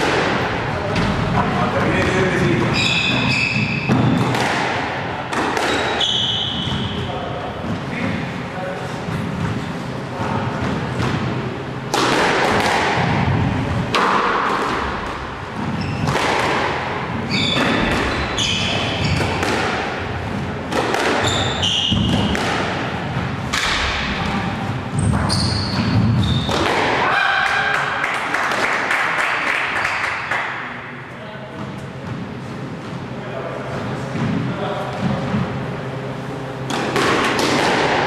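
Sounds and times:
shoe squeaks: 2.6 - 4.2, 5.6 - 7.1, 15.7 - 16.2, 17.2 - 19.4, 21.2 - 22.3, 24.9 - 26.6
squash ball thwacks: 3.8 - 6.0, 11.9 - 16.9, 17.5 - 20.0, 20.7 - 24.4, 26.0 - 27.0, 36.6 - 38.0.

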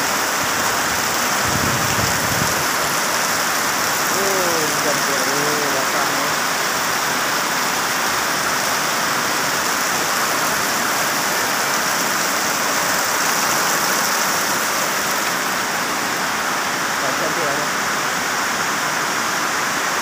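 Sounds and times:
heavy rain on metal roofs: 0.0 - 20.0.

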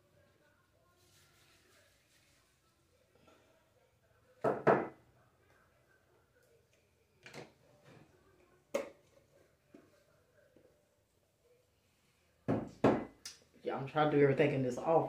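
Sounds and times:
knocks on hard surface: 12.5 - 13.1.

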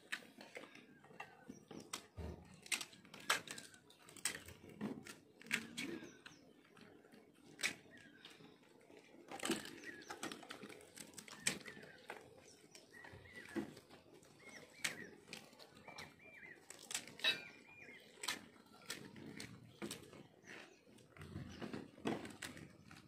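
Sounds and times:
crisp shells cracking: 2.6 - 6.4, 14.5 - 20.1.

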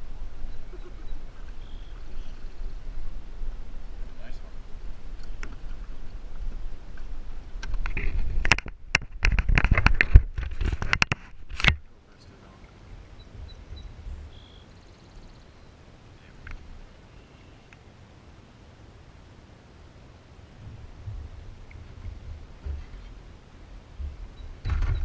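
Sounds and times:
camera handling knocks and scrapes: 7.6 - 11.8.

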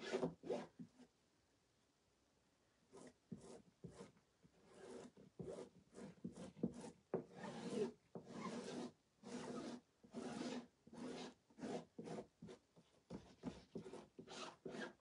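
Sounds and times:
squeegee scraping paste: 3.0 - 12.6, 13.2 - 15.0.

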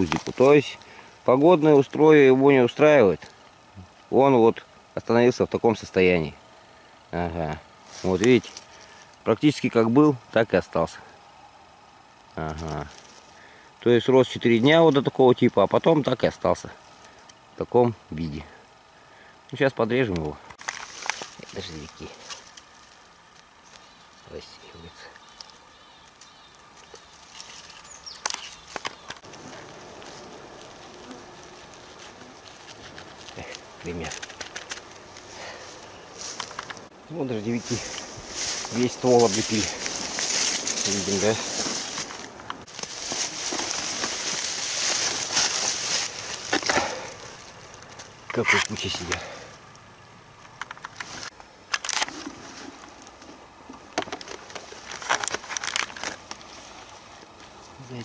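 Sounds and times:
hands clicking and rustling in grass: 0.0 - 2.1, 7.8 - 9.2, 12.2 - 13.4, 20.1 - 58.0
faint outdoor hiss: 0.0 - 58.0.

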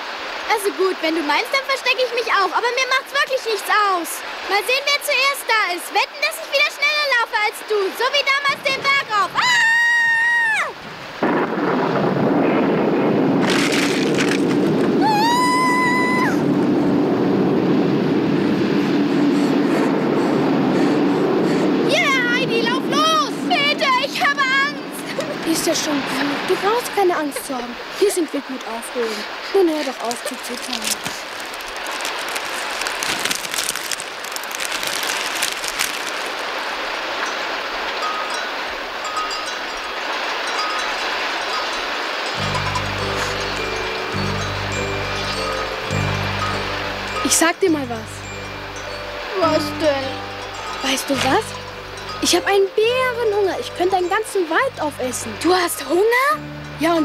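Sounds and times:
heavy rain: 0.0 - 57.0
child crying: 9.0 - 10.8, 15.0 - 16.5, 21.7 - 26.4
thunder rumble: 10.9 - 26.6
lightning crack: 11.1 - 15.0.

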